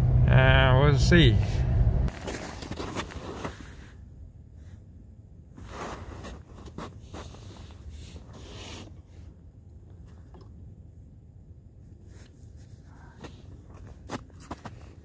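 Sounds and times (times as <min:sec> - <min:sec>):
low steady rumble: 0:00.0 - 0:15.0
snowsuit rustling and scraping: 0:02.1 - 0:04.0, 0:05.6 - 0:08.9.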